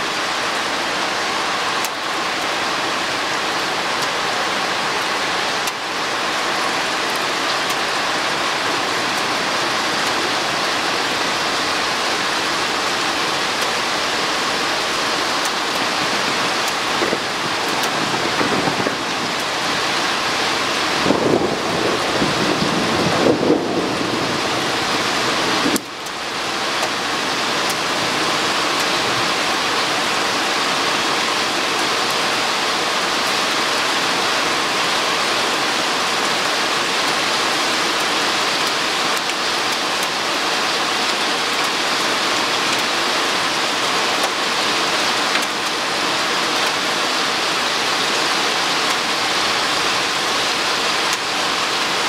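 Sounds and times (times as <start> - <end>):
heavy rain pouring: 0.0 - 52.0
thunder rumble: 21.0 - 25.8.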